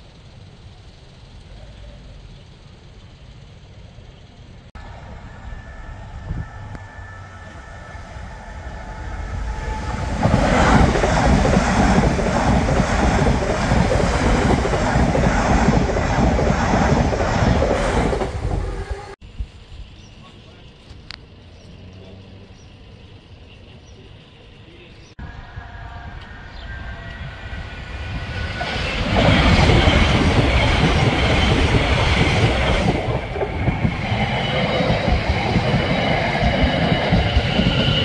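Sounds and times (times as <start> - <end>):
train rumbling past: 0.0 - 19.9, 21.4 - 38.0.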